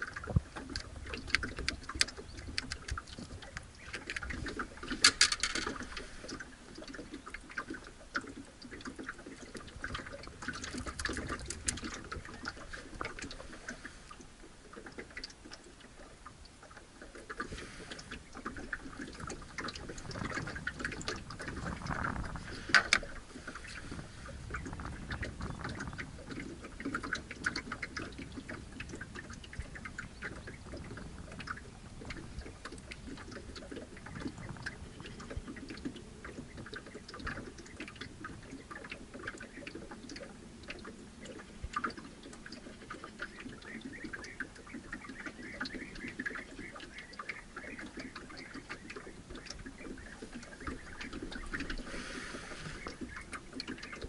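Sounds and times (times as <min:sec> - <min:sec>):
water lapping against boat hull: 0:00.0 - 0:54.0
fishing tackle clicking: 0:05.0 - 0:05.8.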